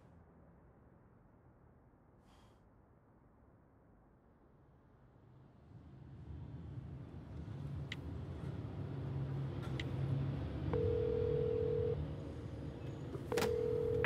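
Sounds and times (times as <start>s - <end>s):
phone ringback beep: 10.8s - 12.0s, 13.3s - 14.0s.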